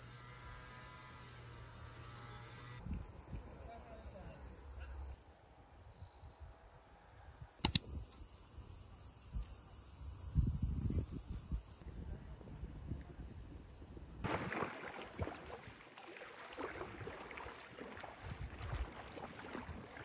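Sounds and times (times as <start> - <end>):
crickets trilling: 2.0 - 20.0
sharp clicks: 7.6 - 7.9
wind rumbling on microphone: 9.3 - 14.5, 16.7 - 20.0
lake water sloshing and splashing: 14.2 - 20.0.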